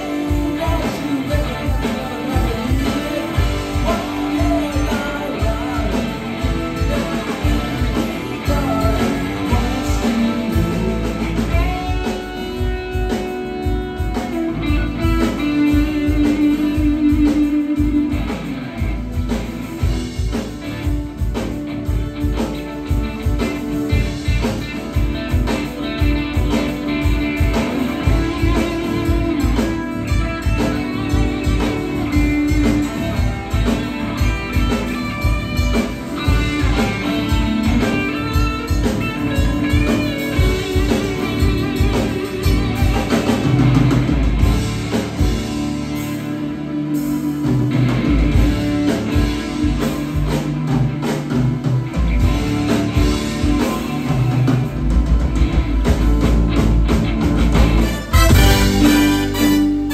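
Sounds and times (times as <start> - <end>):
drum kit beat: 0.0 - 59.9
electric bass: 0.0 - 59.9
wavering held lead notes: 57.8 - 59.9.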